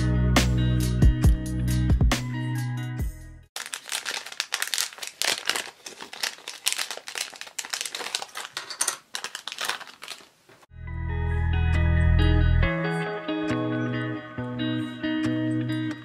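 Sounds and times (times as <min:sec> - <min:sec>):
plastic bag crinkling: 0:03.6 - 0:10.7
background music: 0:10.7 - 0:16.0.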